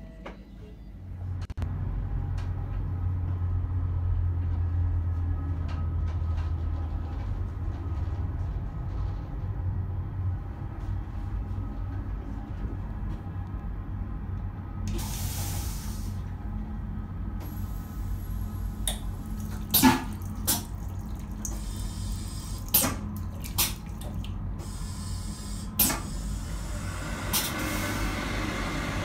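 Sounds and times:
moving train rumble: 0:00.0 - 0:19.4
tap running water into basin: 0:18.9 - 0:24.4
hand dryer blowing: 0:19.6 - 0:29.0.

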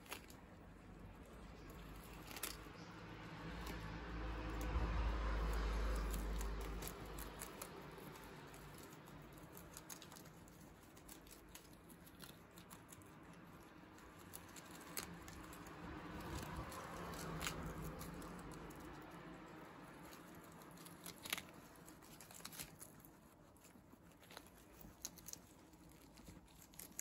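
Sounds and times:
guinea pigs munching lettuce: 0:00.0 - 0:27.0
low rumble: 0:00.9 - 0:09.6.

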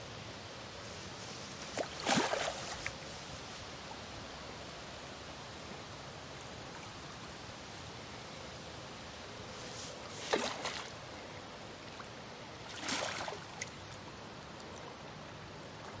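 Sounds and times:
faint steady hiss: 0:00.0 - 0:16.0
fish splashing water: 0:01.8 - 0:03.0, 0:10.2 - 0:11.0, 0:12.6 - 0:13.8.

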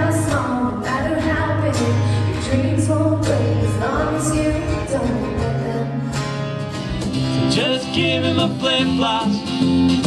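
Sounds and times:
woman singing: 0:00.0 - 0:06.4
guitar accompaniment: 0:00.0 - 0:10.0.

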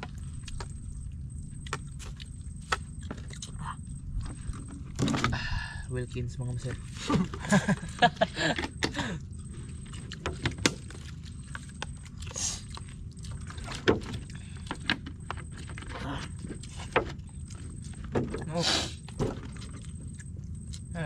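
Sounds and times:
low rumble: 0:00.0 - 0:21.0.

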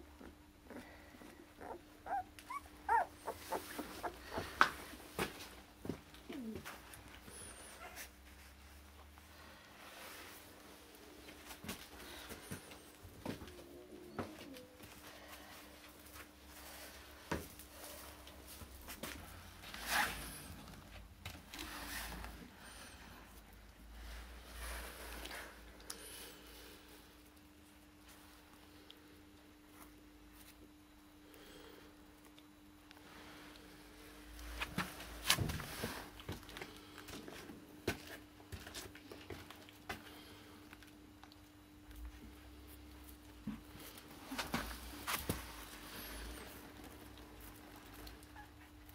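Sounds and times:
faint steady hum: 0:00.0 - 0:48.9
puppies scrambling on concrete: 0:01.6 - 0:08.5
puppies scuffling on hard floor: 0:41.9 - 0:48.4.

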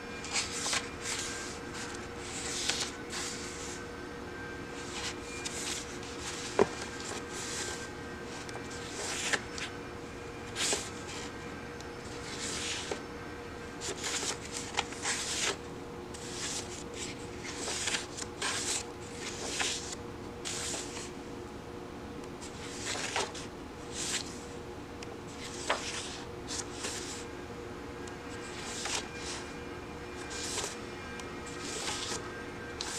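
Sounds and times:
faint steady hum: 0:00.0 - 0:32.9
book pages turning: 0:00.2 - 0:03.8, 0:04.8 - 0:09.7, 0:10.5 - 0:11.3, 0:12.0 - 0:13.0, 0:13.8 - 0:15.6, 0:16.2 - 0:21.1, 0:22.4 - 0:24.4, 0:25.3 - 0:27.2, 0:28.4 - 0:29.5, 0:30.2 - 0:30.8, 0:31.5 - 0:32.2.

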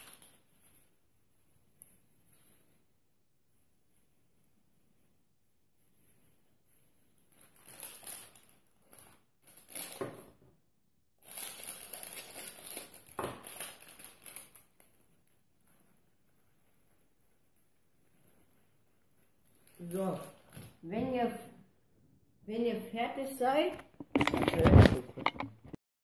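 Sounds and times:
rustling and crinkling handling noise: 0:07.2 - 0:10.4, 0:11.2 - 0:15.0, 0:23.2 - 0:25.8.

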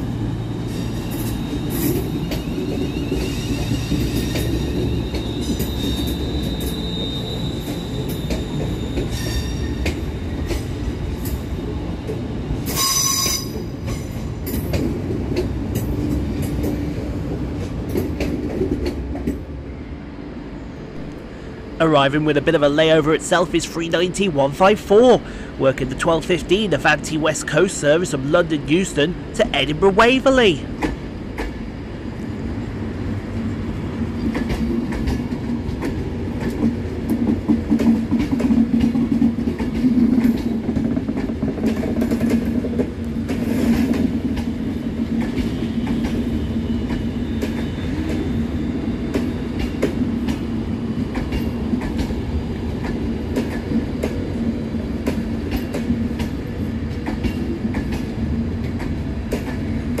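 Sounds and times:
train rumbling: 0:00.0 - 1:00.0
train wheels clicking over joints: 0:00.8 - 0:19.4, 0:34.1 - 1:00.0.

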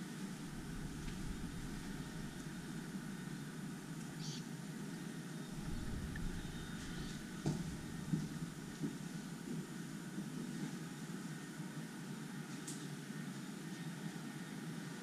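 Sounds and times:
low rumbling background noise: 0:00.0 - 0:15.0
faint high chirp: 0:04.1 - 0:04.5.

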